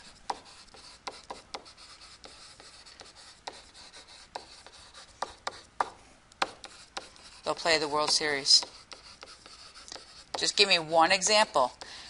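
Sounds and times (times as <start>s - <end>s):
stylus scratching on tablet: 0.0s - 11.8s
stylus tip tapping screen: 4.4s - 10.7s.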